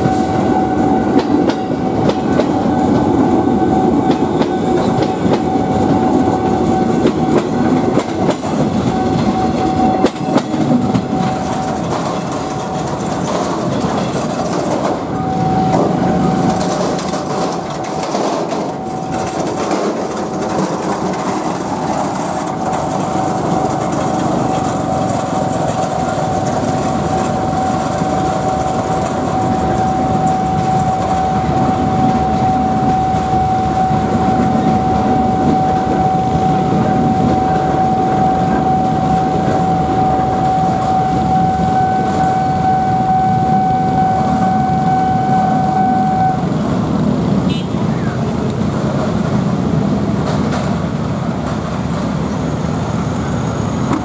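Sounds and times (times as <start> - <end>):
constant high-pitched tone: 0.0 - 46.7
steady engine noise: 0.9 - 54.0
fainter higher tone: 25.4 - 46.5.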